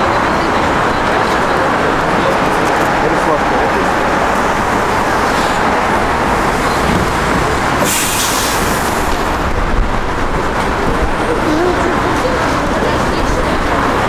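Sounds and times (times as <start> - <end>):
street traffic passing: 0.0 - 14.0
short sharp hiss: 7.8 - 9.0.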